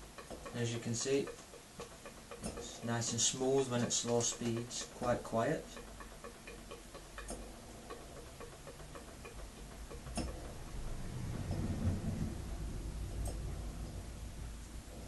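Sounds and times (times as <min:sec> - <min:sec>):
model steam engine running: 0:00.0 - 0:07.3
light mechanical ticking: 0:00.0 - 0:15.0
sharp clicks: 0:03.7 - 0:10.8
low hum: 0:09.6 - 0:15.0.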